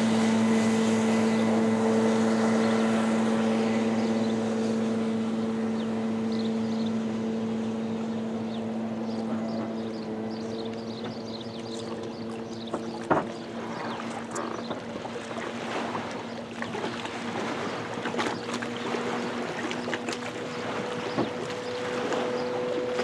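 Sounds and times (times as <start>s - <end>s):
personal watercraft engine drone: 0.0s - 23.0s.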